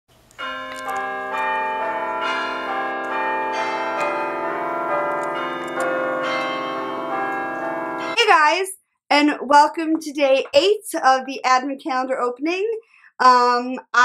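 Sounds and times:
chiming bell music: 0.4 - 8.2.

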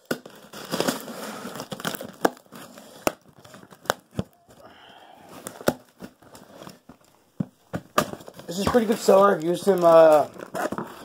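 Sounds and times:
packaging crinkling: 0.0 - 4.7, 5.3 - 11.0.

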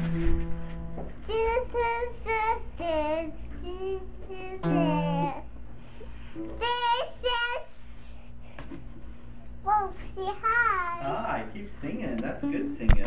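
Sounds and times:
low guitar note: 0.0 - 1.2, 4.6 - 5.4
toddler singing: 1.2 - 5.5, 6.6 - 7.7, 9.6 - 11.0.

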